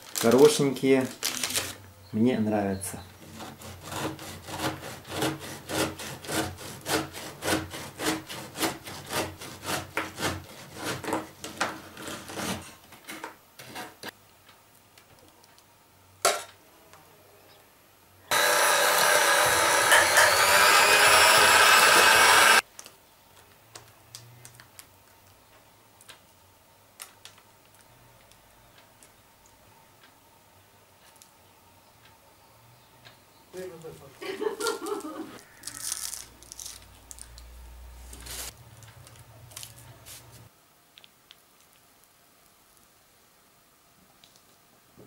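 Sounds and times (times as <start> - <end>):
knife sawing through cake: 3.3 - 11.2.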